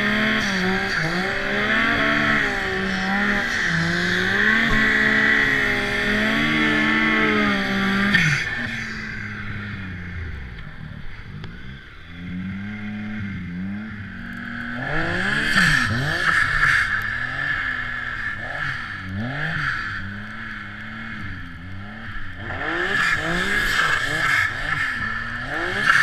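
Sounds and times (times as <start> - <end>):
snowmobile engine revving: 0.0 - 26.0.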